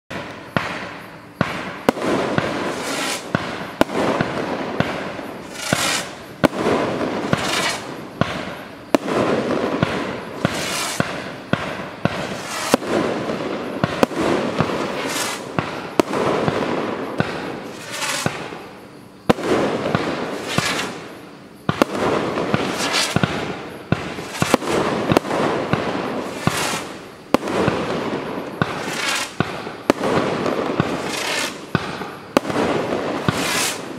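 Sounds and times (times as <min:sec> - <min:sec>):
firework bangs: 0:00.1 - 0:33.9
firework hissing and crackling: 0:00.1 - 0:33.9.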